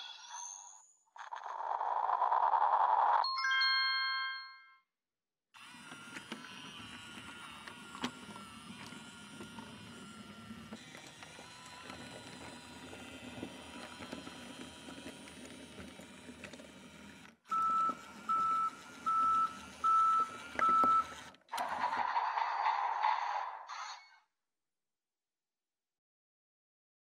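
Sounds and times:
toy train motor rumble: 1.2 - 3.2, 5.6 - 22.2.

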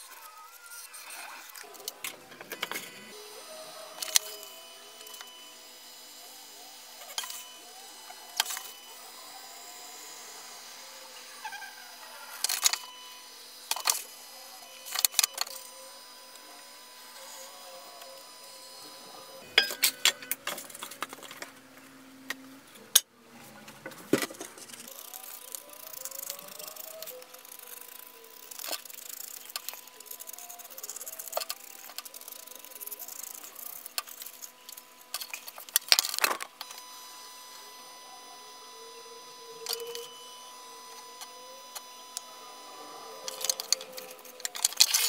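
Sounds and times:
foam cutter hum: 0.0 - 23.0, 24.1 - 45.0.

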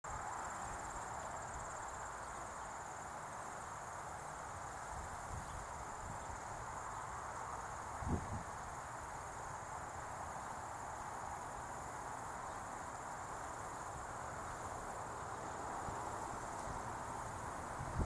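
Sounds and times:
crickets trilling: 0.0 - 18.0
wind rumble on microphone: 8.0 - 8.7, 15.8 - 18.0.

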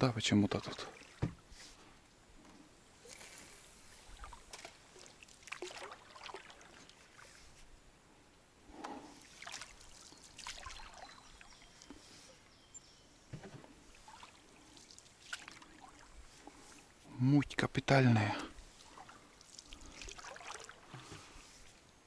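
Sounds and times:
paddle strokes splashing: 0.6 - 1.9, 3.0 - 7.7, 8.9 - 12.5, 13.4 - 17.1, 18.5 - 21.8
water dripping and trickling: 4.0 - 7.4, 9.2 - 12.0, 13.9 - 16.8, 18.7 - 21.4.

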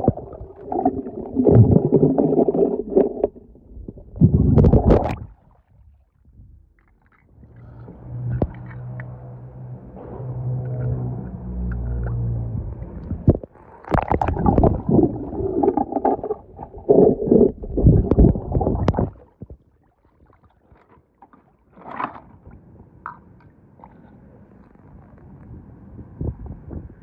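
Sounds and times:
water splashing and bubbling: 0.0 - 7.5, 12.9 - 24.1.

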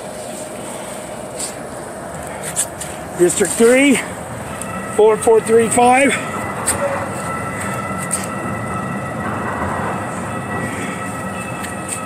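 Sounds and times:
city street traffic: 0.0 - 12.0
high-pitched whining tones: 0.0 - 12.0.

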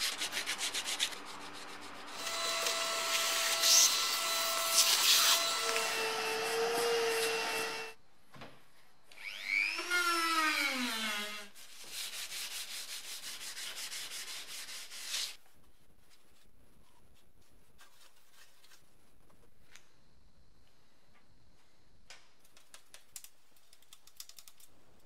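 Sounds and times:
hand sanding body filler: 0.0 - 7.9, 11.6 - 15.4.

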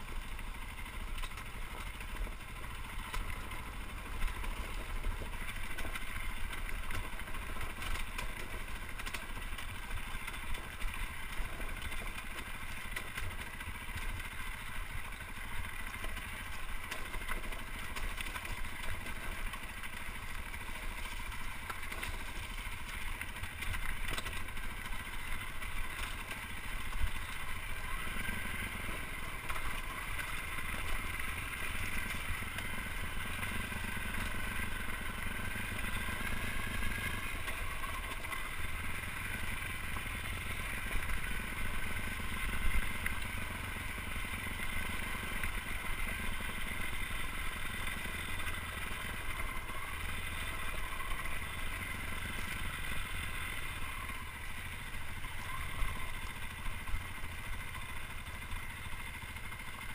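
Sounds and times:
dirt bike engine running: 0.0 - 59.9
sharp ticks: 0.2 - 59.9.

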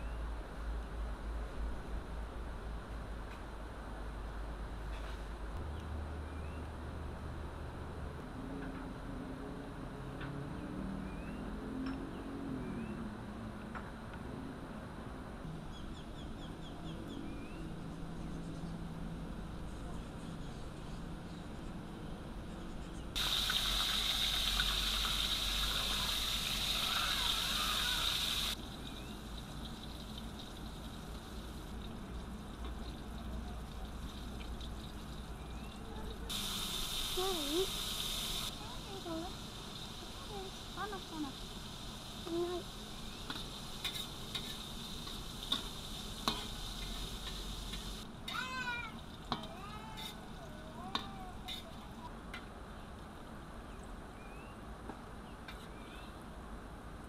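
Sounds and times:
food deep-frying in oil: 23.2 - 48.1, 48.8 - 52.0.

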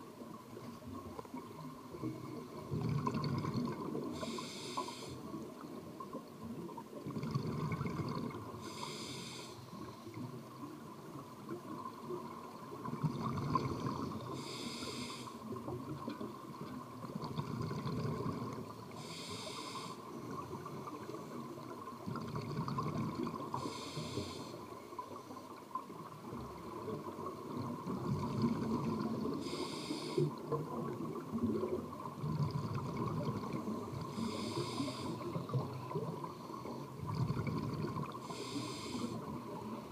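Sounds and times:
exhaled air bubbling: 0.9 - 5.6, 6.6 - 9.1, 12.4 - 19.2, 20.2 - 24.2, 26.3 - 39.9
regulator inhalation hiss: 4.2 - 5.3, 8.6 - 9.7, 14.3 - 15.5, 19.0 - 20.2, 23.5 - 24.6, 29.4 - 30.4, 34.1 - 35.4, 38.2 - 39.3.

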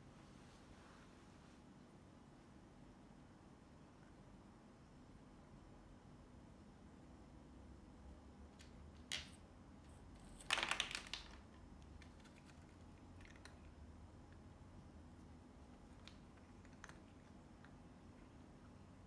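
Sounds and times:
faint ticks of cat eating: 15.6 - 18.6.

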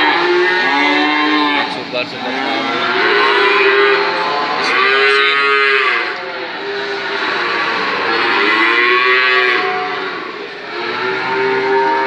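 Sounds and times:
background hubbub: 0.0 - 12.0
cattle mooing: 0.0 - 12.0.

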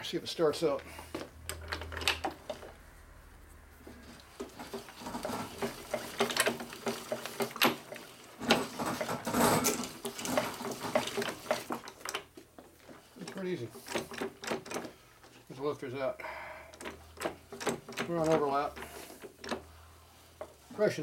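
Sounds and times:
metal tool clatter: 4.4 - 12.3.

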